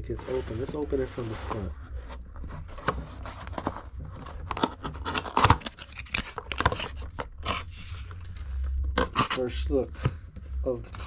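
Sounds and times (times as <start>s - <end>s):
cardboard tearing and scraping: 2.6s - 8.1s.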